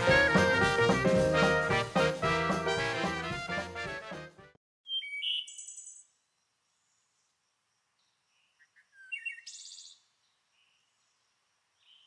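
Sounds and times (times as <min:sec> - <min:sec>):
bird chirping: 0:04.9 - 0:07.3, 0:08.0 - 0:11.2.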